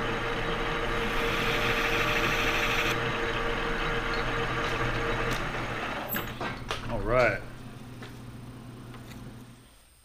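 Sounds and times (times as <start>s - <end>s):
gritty metal cutting: 0.0s - 6.0s
lathe running: 0.0s - 6.4s.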